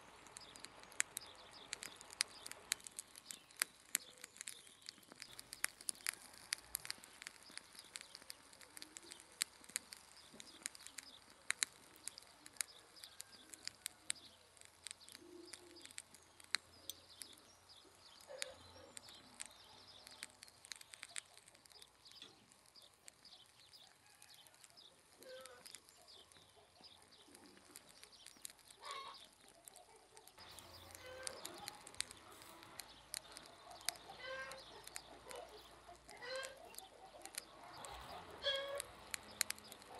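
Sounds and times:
meat crackling on coals: 0.0 - 39.9
short bird calls: 25.2 - 27.5, 28.8 - 38.9.

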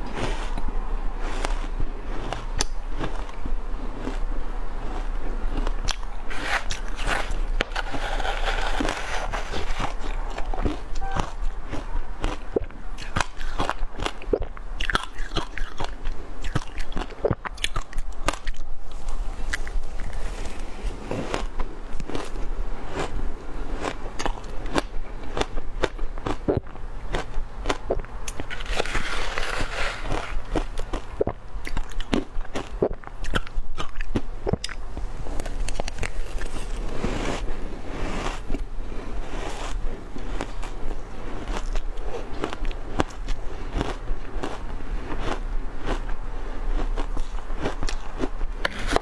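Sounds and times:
chewing crunchy ice: 0.0 - 49.0.

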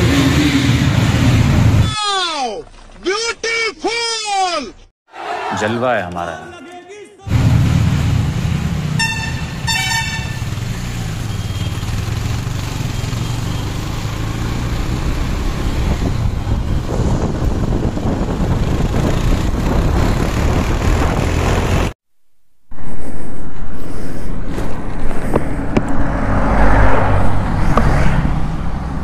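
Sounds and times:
motorcycle engine running: 8.1 - 14.8
horn toots: 8.9 - 11.8.

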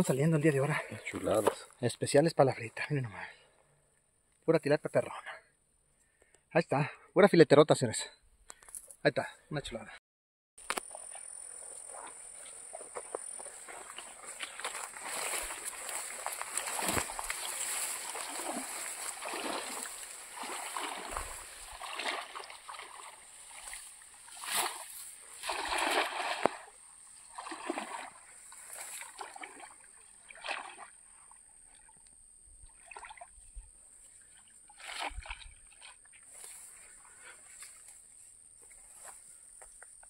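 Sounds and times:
water splashing: 10.8 - 31.0, 32.6 - 33.4, 34.3 - 36.1.

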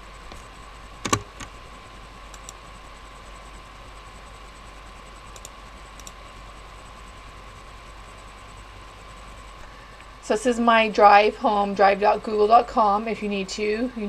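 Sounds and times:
faint steady hum: 0.0 - 14.0
computer mouse clicks: 0.3 - 1.5, 2.3 - 2.6, 5.3 - 6.2.

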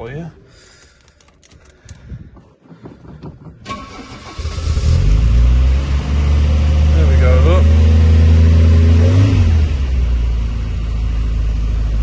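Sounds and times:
key turning clicks: 0.6 - 2.1
car engine cranking and starting: 3.6 - 12.0.

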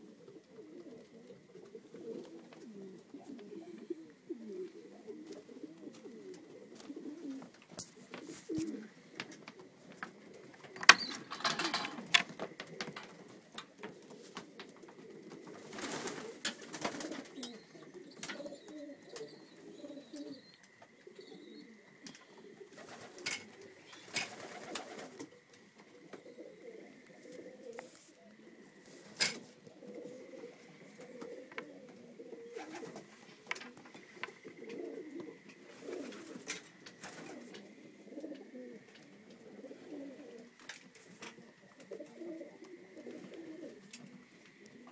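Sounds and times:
pigeons cooing: 0.0 - 44.9
wings flapping and clatter: 7.6 - 17.5, 22.7 - 25.4, 32.5 - 34.0, 35.8 - 37.6.

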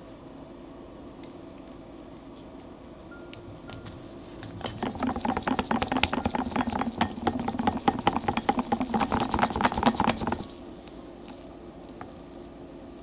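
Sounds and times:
ringing tone: 3.1 - 4.0
whisk clattering against glass bowl: 4.6 - 10.5.

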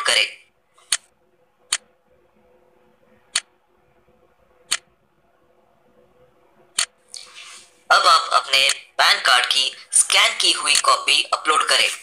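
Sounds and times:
faint steady hum: 0.0 - 12.0
computer mouse clicking: 0.8 - 1.1.

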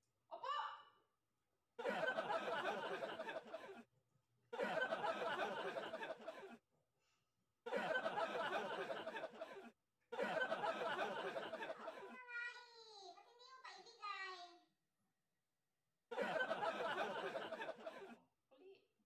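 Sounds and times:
group laughter: 1.8 - 3.9, 4.5 - 6.6, 7.7 - 12.3, 16.1 - 18.2.

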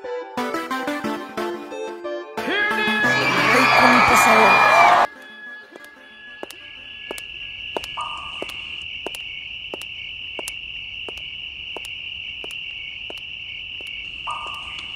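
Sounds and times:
cricket trill: 5.2 - 14.9
sharp insect clicks: 5.8 - 14.9.

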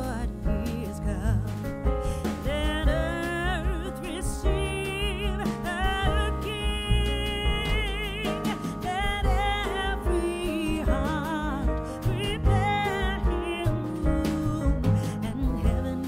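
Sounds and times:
steady bass: 0.0 - 16.0.

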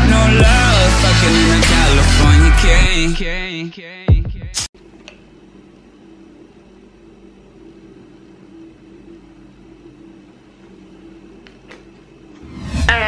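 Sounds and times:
appliance humming: 4.8 - 12.6.

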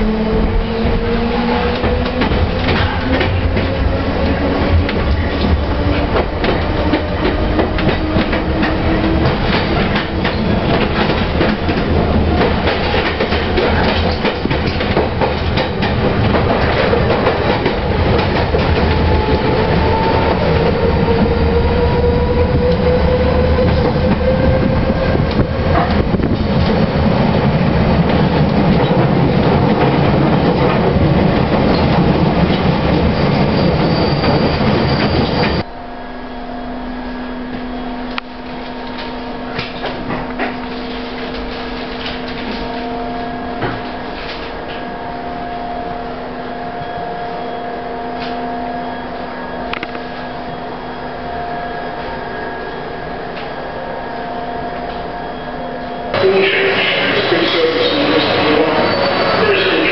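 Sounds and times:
train wheels rumbling on rail: 0.0 - 35.7, 37.4 - 47.1, 54.7 - 59.9
rising whine: 33.6 - 59.5.

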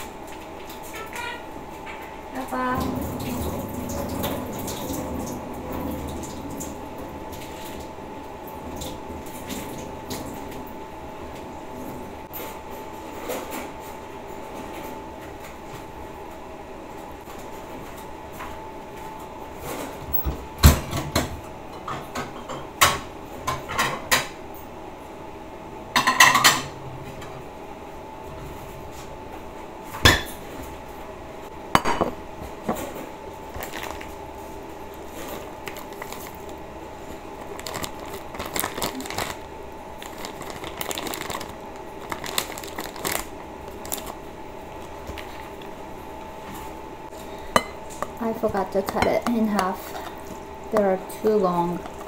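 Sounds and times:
faint hum: 0.0 - 52.0.

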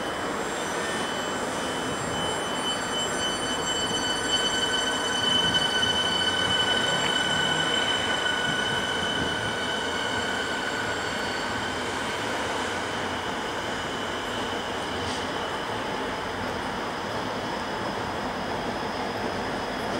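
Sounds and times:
high-pitched wheel squeal: 0.0 - 15.8
train rolling: 0.0 - 19.9.

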